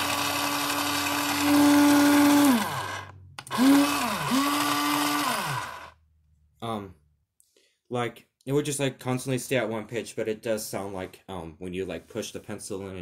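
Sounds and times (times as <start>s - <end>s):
electric pencil sharpener whirring: 0.0s - 6.0s.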